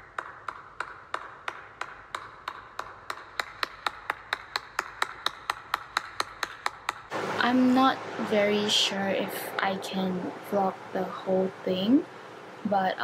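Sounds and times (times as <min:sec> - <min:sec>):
person clapping hands: 0:00.0 - 0:07.1.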